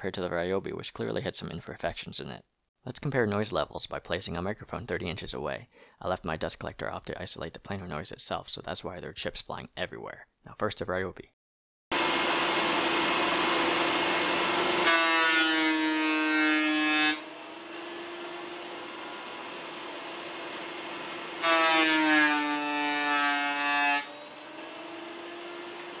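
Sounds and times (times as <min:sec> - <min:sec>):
thickness planer cutting scream: 0:11.9 - 0:26.0
planer humming at no load: 0:12.0 - 0:15.2, 0:16.9 - 0:21.9, 0:24.1 - 0:26.0.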